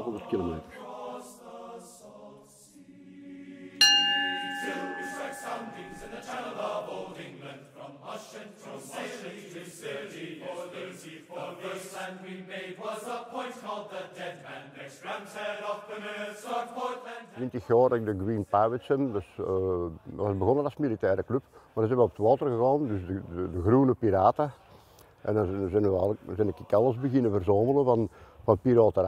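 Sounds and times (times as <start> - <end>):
choral chanting music: 0.0 - 17.7, 25.1 - 27.8
ship's bell ringing: 3.8 - 7.0.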